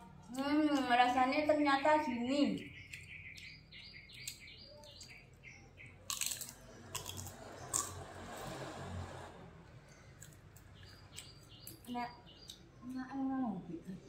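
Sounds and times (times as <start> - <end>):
small bird chirping: 0.3 - 8.0, 9.8 - 14.0
soft chewing: 9.8 - 12.7.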